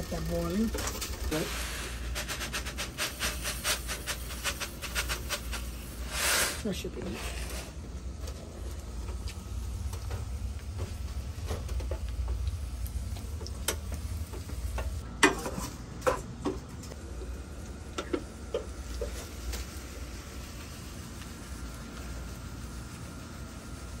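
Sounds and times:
utensil scraping saucepan: 0:00.0 - 0:07.9
mushrooms sizzling in butter: 0:18.3 - 0:23.9.

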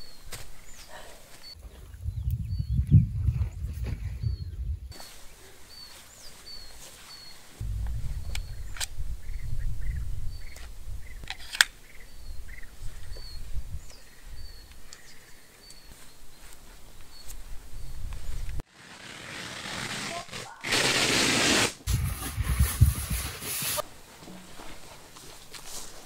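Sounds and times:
birds chirping: 0:00.0 - 0:18.2
low rumble: 0:07.6 - 0:11.2
steady hiss: 0:20.5 - 0:24.8.

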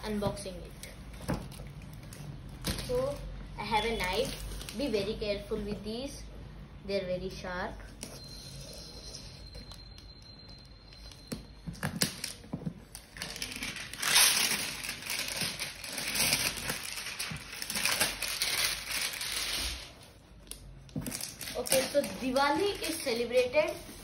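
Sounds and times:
plastic wrap tearing and crinkling: 0:11.9 - 0:24.0.

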